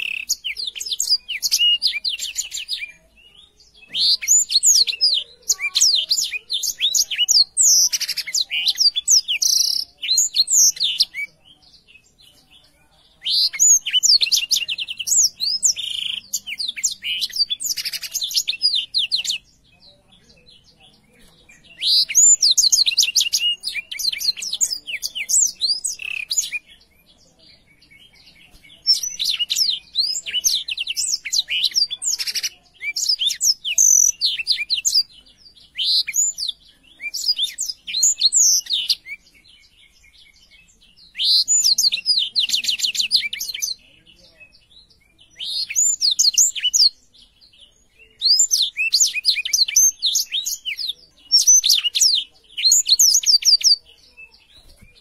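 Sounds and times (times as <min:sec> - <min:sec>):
canary singing twittering song: 0:00.0 - 0:55.0.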